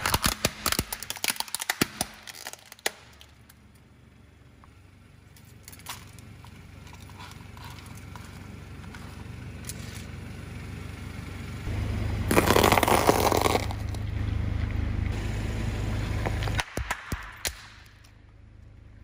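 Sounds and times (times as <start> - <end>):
plastic pieces clicking: 0.0 - 3.3
tyre crushing cookies and candy: 0.0 - 3.5, 12.3 - 14.0
car low steady rumble: 0.0 - 19.0.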